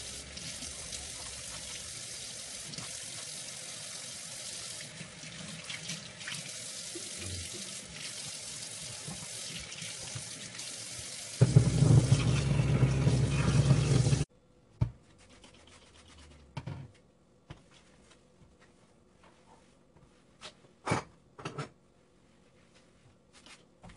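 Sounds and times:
faucet running into sink: 0.0 - 14.2.

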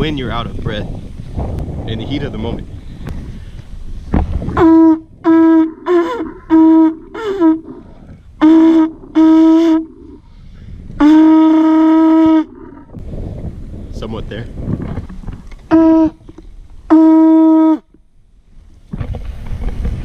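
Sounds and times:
conch shell horn blasts: 4.5 - 7.8, 8.4 - 10.2, 11.0 - 12.6, 15.7 - 16.2, 16.9 - 17.9.

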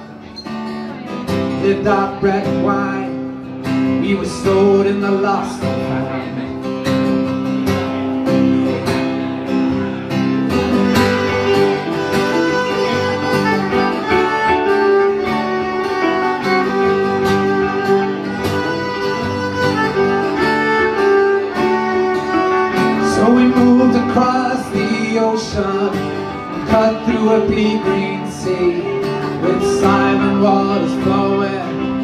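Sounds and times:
fiddle melody: 0.0 - 32.0
second guitar: 0.0 - 32.0
strummed acoustic guitar: 0.0 - 32.0.

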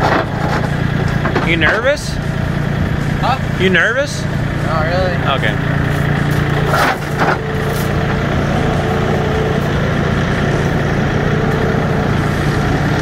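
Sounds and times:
metal loading ramp clanking: 0.0 - 2.2, 6.3 - 7.9
diesel engine idling: 0.0 - 13.0.

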